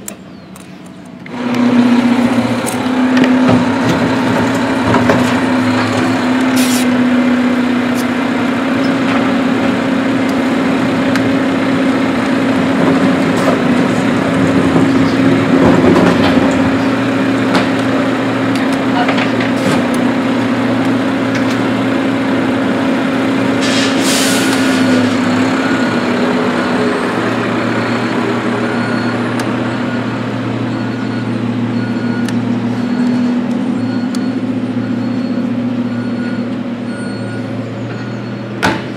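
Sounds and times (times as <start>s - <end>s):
helicopter drone overhead: 0.1s - 23.6s.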